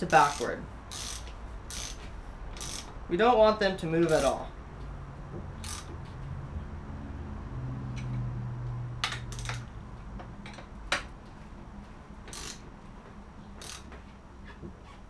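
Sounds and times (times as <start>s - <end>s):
wrench metallic clicks: 0.1s - 3.0s, 4.0s - 4.4s, 5.6s - 5.9s, 9.0s - 9.7s, 12.3s - 12.6s, 13.6s - 14.0s.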